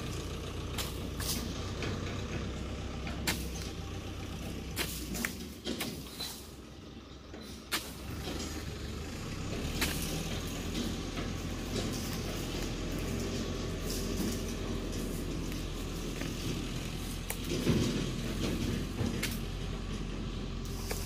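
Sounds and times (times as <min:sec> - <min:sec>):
chisel striking palm fronds: 0:00.8 - 0:01.5, 0:03.1 - 0:03.8, 0:04.5 - 0:06.5, 0:07.7 - 0:08.6, 0:09.6 - 0:19.5, 0:20.6 - 0:21.0.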